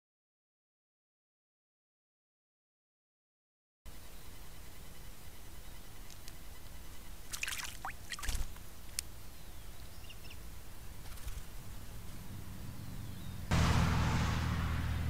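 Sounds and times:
bird splashing in water: 7.3 - 8.6.

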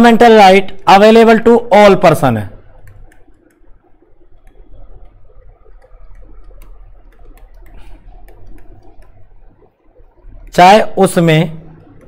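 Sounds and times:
low electrical hum: 0.0 - 12.0
stylus tapping on pen tablet: 4.4 - 9.5.

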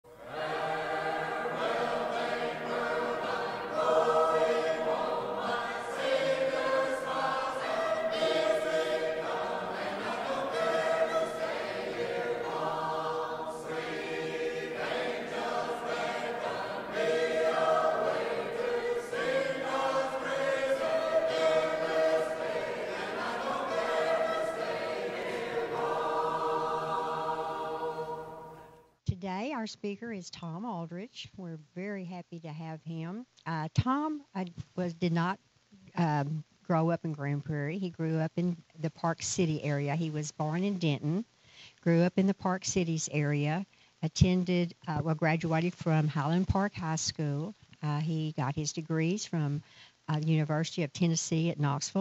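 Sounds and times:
choir singing long held chords: 0.1 - 28.9.

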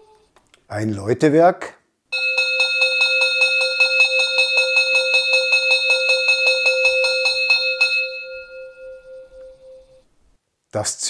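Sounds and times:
locomotive bell ringing rapidly: 2.2 - 9.9.

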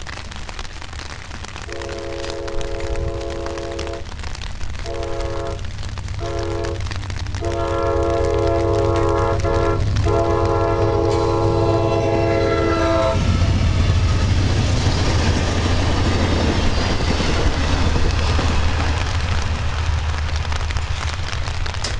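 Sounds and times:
train rumbling past: 1.6 - 21.9
train horn blast: 1.7 - 4.1, 4.8 - 13.4
train wheel clatter: 4.8 - 21.9.

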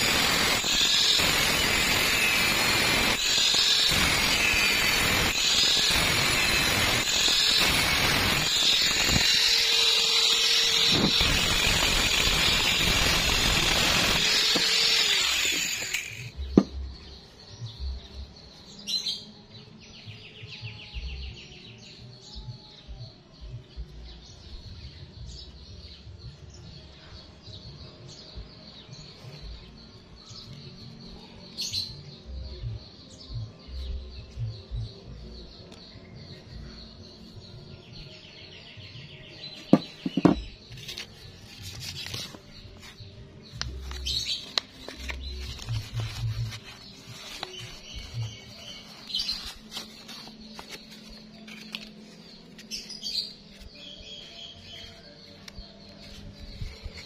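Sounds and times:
angle grinder cutting metal pipe: 0.0 - 16.4.

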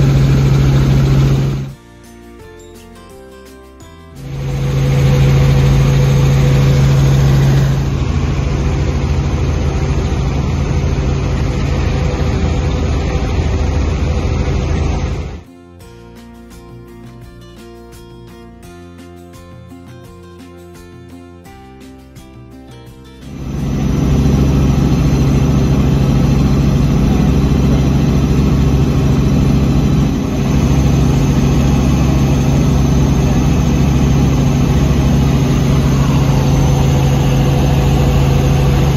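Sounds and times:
helicopter engine and rotor rumble: 0.0 - 1.8, 4.2 - 15.4, 23.3 - 38.9
steady low hum: 4.2 - 15.4, 23.3 - 38.9.

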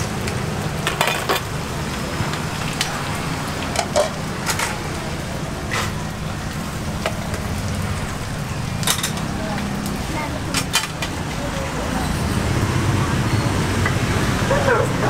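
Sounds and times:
metal ladle clinking on trays: 8.8 - 9.2.

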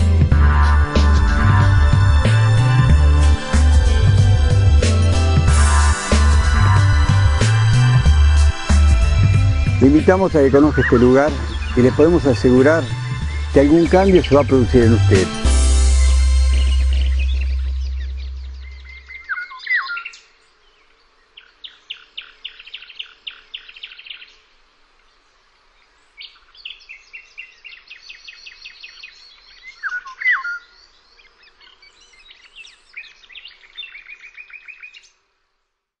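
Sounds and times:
birds trilling: 0.0 - 24.3, 26.3 - 34.7
sharp down-slurred bird calls: 9.8 - 24.5, 25.8 - 35.2.

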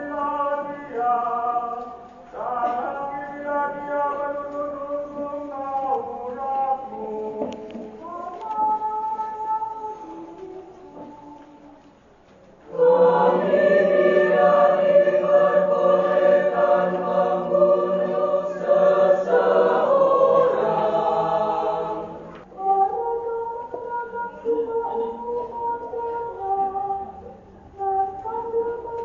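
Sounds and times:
mixed choir singing: 0.0 - 10.3, 12.7 - 23.7.

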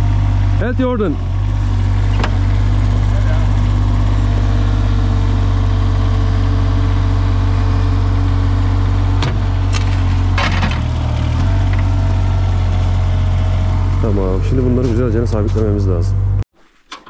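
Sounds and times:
engine idling: 0.0 - 16.4
sharp knocks and clatter: 9.2 - 11.9.

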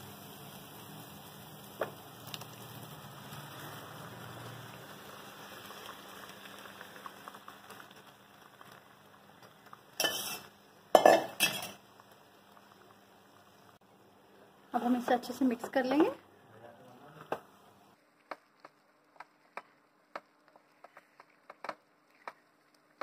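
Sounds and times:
faint sizzle: 0.0 - 23.0
metal cookware clanking: 10.0 - 11.8
wooden spatula scraping: 18.2 - 23.0.

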